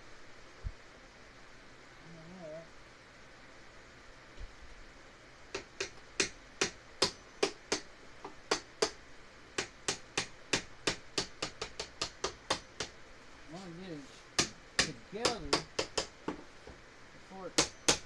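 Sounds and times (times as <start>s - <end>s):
hammer tapping on bamboo: 5.5s - 9.0s, 9.6s - 13.0s, 14.4s - 16.8s, 17.6s - 18.0s.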